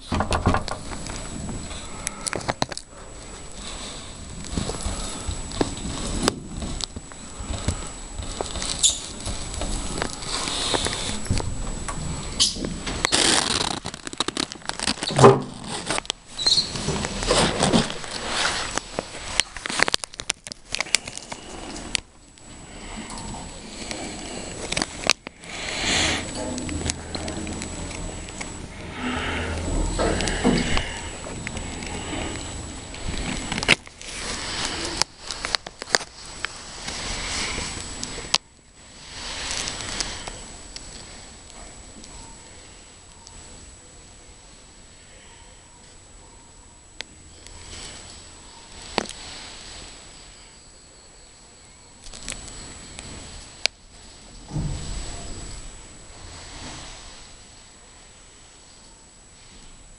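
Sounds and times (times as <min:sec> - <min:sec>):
sharp clicks and knocks: 0:00.0 - 0:02.9
microphone handling noise: 0:00.0 - 0:41.4.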